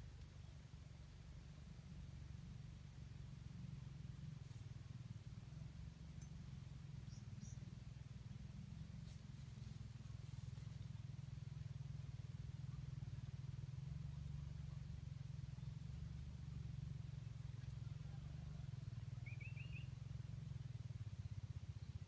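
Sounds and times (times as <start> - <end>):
faint low rumble: 0.0 - 22.0
faint ticks: 6.1 - 7.6.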